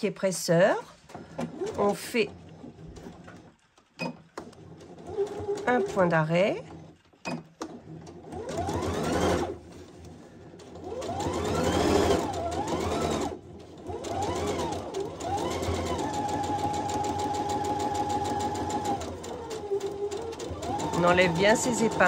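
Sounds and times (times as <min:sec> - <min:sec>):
sewing machine motor whine: 0:04.6 - 0:07.0, 0:07.9 - 0:09.6, 0:10.6 - 0:22.0.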